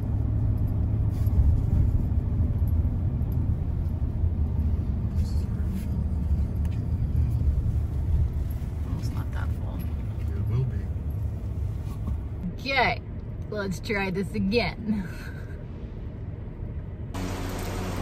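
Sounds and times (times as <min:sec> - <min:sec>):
engine and road noise rumble: 0:00.0 - 0:18.0.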